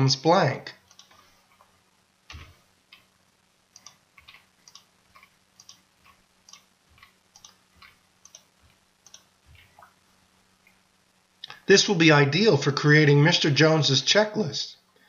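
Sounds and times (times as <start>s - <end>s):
computer mouse clicks: 0.9s - 1.2s, 3.8s - 9.9s.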